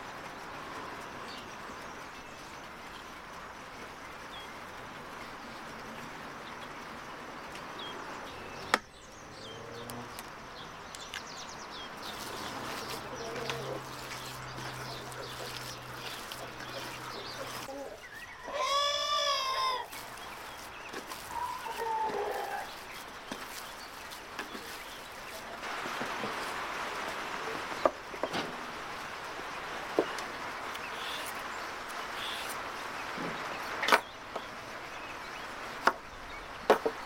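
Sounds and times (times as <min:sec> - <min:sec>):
rooster crowing: 0:17.6 - 0:19.9, 0:21.2 - 0:22.7.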